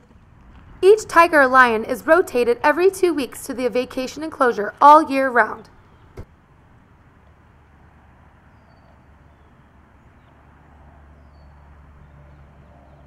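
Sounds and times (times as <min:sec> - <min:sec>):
low steady rumble: 0:00.0 - 0:09.4.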